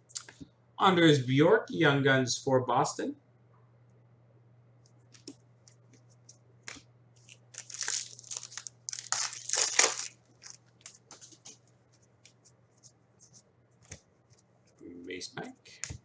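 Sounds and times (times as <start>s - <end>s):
cards being handled: 5.1s - 14.5s
wrapper crinkling and tearing: 7.2s - 11.6s.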